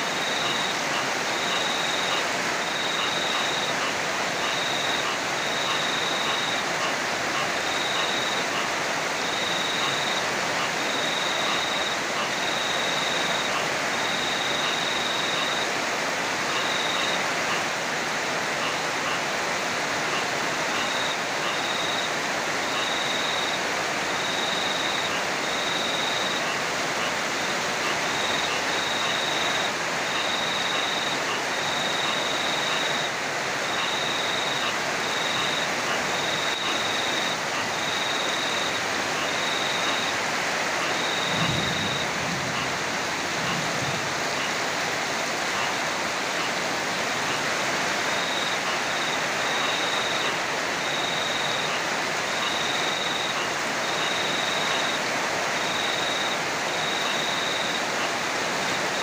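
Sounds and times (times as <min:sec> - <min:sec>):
heavy rain pouring: 0:00.0 - 0:59.0
high-pitched insect trill: 0:40.9 - 0:42.7.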